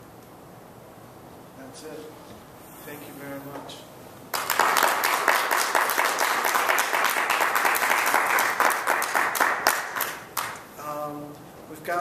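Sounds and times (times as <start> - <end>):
audience applauding: 4.3 - 10.6.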